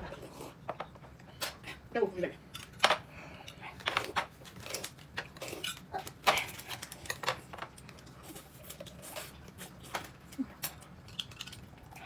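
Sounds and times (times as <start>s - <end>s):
chewing and crunching: 2.5s - 12.0s.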